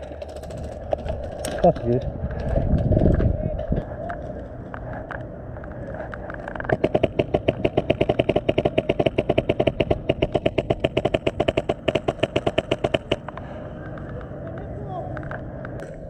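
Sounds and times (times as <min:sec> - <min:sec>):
airsoft rifle automatic fire: 0:06.7 - 0:13.2.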